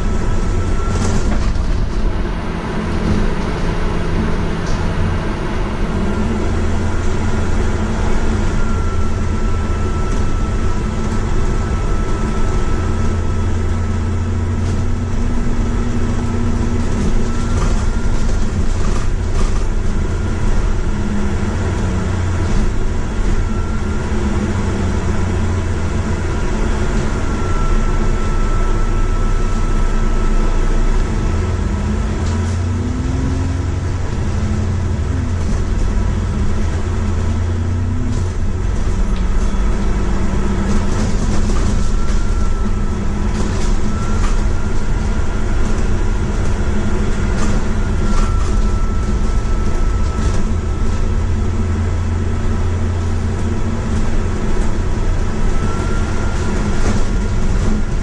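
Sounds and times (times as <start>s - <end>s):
bus engine drone: 0.0s - 58.0s
faint high whine: 6.1s - 16.5s, 23.2s - 31.6s.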